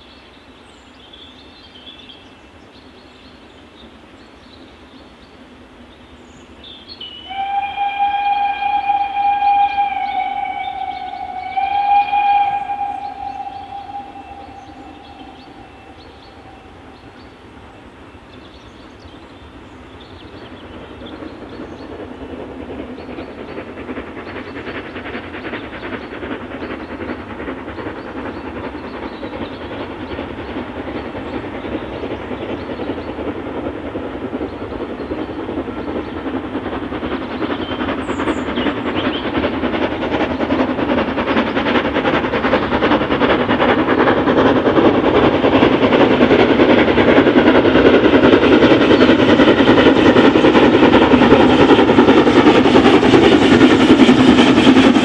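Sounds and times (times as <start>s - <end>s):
steam locomotive exhaust beats: 0.0s - 55.0s
wheels rumbling on rails: 0.0s - 55.0s
train whistle: 7.0s - 17.4s.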